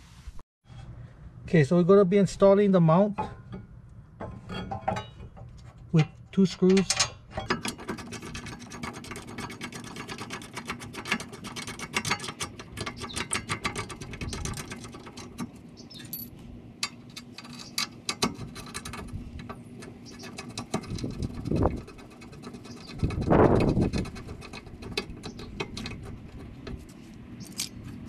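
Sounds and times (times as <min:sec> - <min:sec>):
low steady hum: 0:00.1 - 0:08.7.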